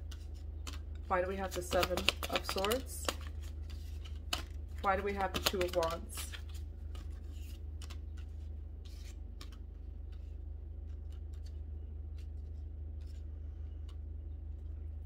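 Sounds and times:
cards clicking and sliding: 0:00.0 - 0:13.2
steady low hum: 0:00.0 - 0:15.0
cards tapped on wooden table: 0:01.5 - 0:03.3, 0:04.3 - 0:06.0.

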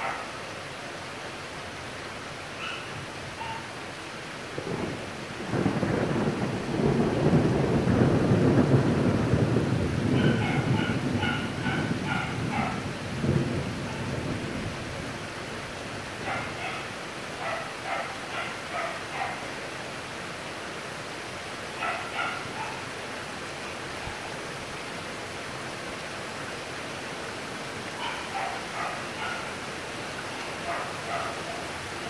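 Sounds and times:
heavy rain hissing: 0:00.0 - 0:32.0
thunder rumbling: 0:04.6 - 0:15.0.

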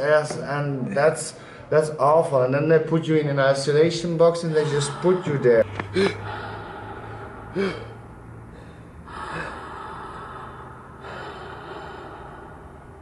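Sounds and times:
man grunting: 0:04.4 - 0:06.2
man breathing hard and gasping: 0:04.4 - 0:13.0.

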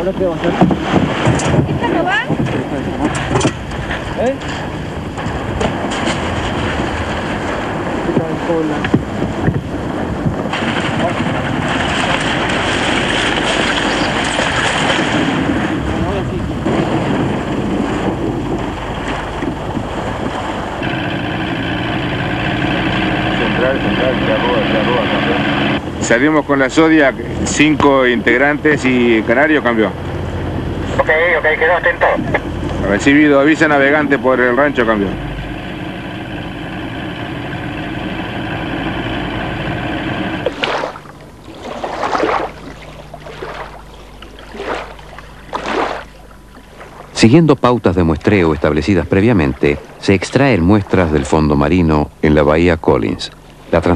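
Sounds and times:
outboard motor running: 0:00.0 - 0:53.9
water around a boat: 0:00.0 - 0:53.9
wind: 0:00.0 - 0:53.9.

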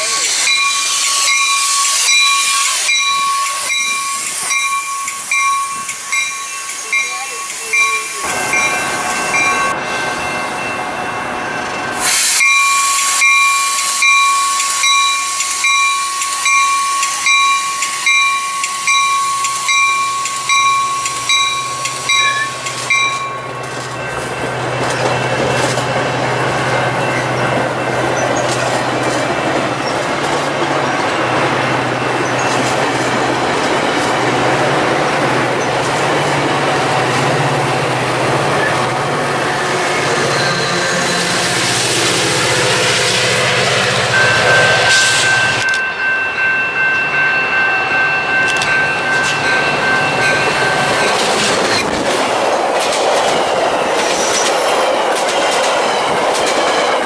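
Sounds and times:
train bell dinging: 0:00.0 - 0:57.0
train cars rolling: 0:00.0 - 0:57.0
air hissing: 0:12.0 - 0:16.4
wheel-on-rail noise: 0:48.0 - 0:57.0.

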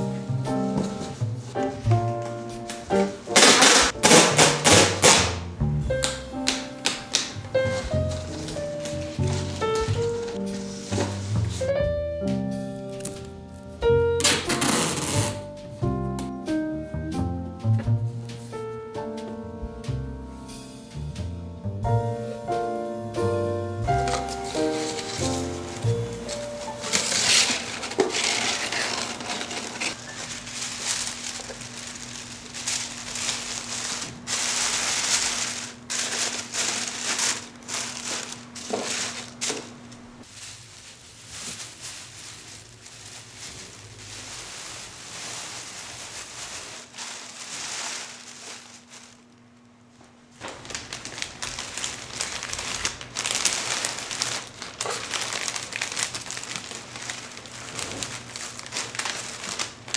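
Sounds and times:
wrapping material crinkling: 0:08.0 - 0:11.5, 0:14.2 - 0:15.4, 0:23.9 - 0:59.9.

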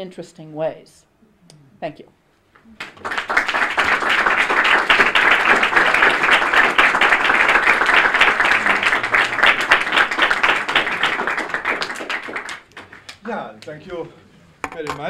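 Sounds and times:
audience applauding: 0:02.6 - 0:13.4.

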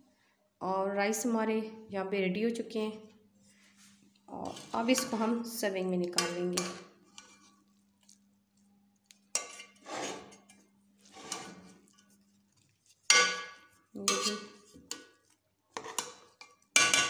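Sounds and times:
metal spoon scraping steel pot: 0:04.3 - 0:05.3, 0:06.2 - 0:07.6, 0:09.3 - 0:15.1, 0:15.8 - 0:17.0.

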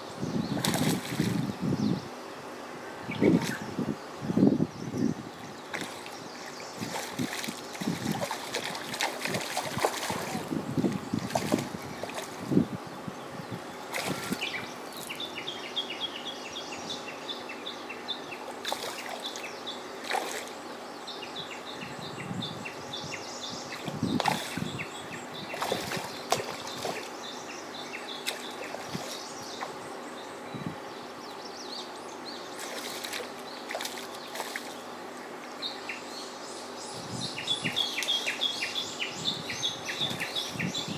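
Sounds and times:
fish splashing in water: 0:00.6 - 0:01.5, 0:06.8 - 0:12.4, 0:13.9 - 0:14.5, 0:18.5 - 0:19.4, 0:20.0 - 0:20.6, 0:23.8 - 0:24.8, 0:25.5 - 0:27.2, 0:32.6 - 0:34.8.

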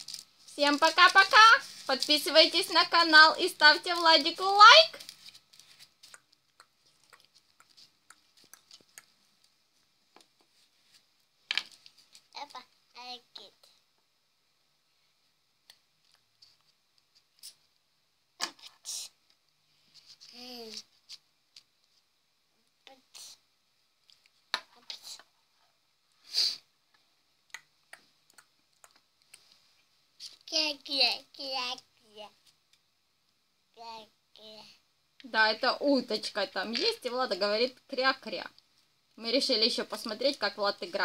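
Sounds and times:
brief hiss: 0:26.2 - 0:26.7.

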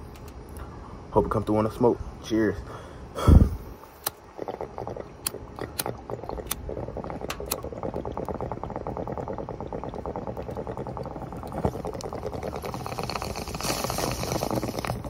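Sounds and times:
rush of air: 0:03.2 - 0:03.9
bong water bubbling: 0:03.4 - 0:15.0
sharp clicks: 0:07.3 - 0:07.6.

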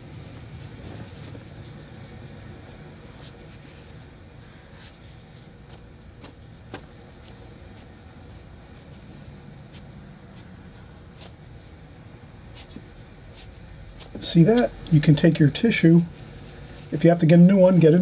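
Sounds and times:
steady low hum: 0:00.0 - 0:18.0
tissue dabbing wet paper: 0:00.2 - 0:17.9.

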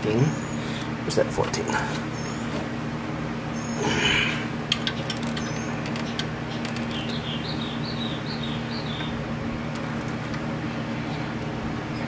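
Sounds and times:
steady low hum: 0:00.0 - 0:12.0
bird chirping: 0:02.1 - 0:02.6, 0:03.5 - 0:09.2.

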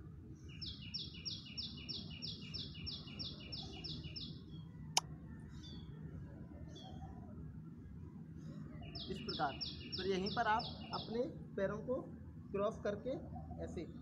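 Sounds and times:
bird chirping: 0:00.4 - 0:07.3, 0:08.4 - 0:11.3.

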